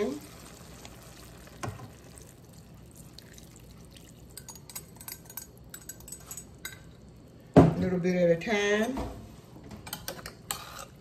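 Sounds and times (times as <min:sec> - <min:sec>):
liquid trickling into hot pan: 0:00.0 - 0:07.3.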